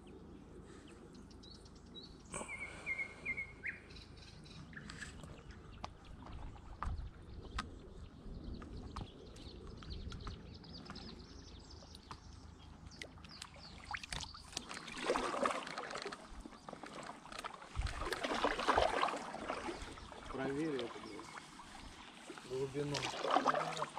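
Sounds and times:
small drips and clicks: 4.8s - 23.9s
water splashing and trickling: 5.0s - 10.9s, 11.5s - 23.9s
paddle strokes splashing: 12.0s - 23.9s.

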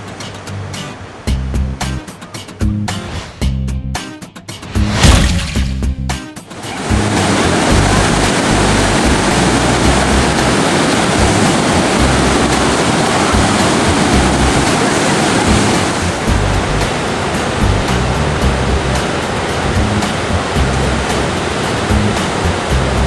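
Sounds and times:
floodwater rushing: 4.6s - 5.9s, 6.5s - 23.0s.

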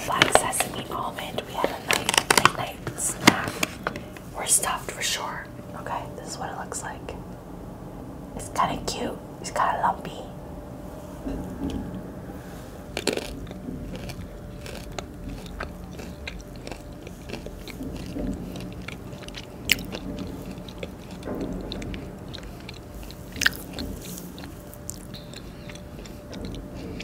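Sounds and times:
crunching almonds: 0.0s - 4.8s, 12.8s - 27.0s
low steady hum: 0.0s - 27.0s.

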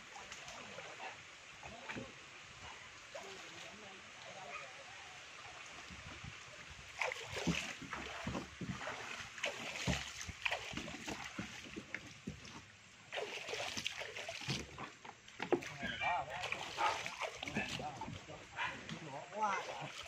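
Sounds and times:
water and mud splashing: 0.0s - 20.0s.

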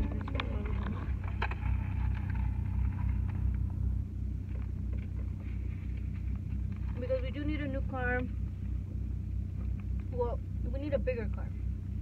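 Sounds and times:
car cabin rumble: 0.0s - 12.0s.

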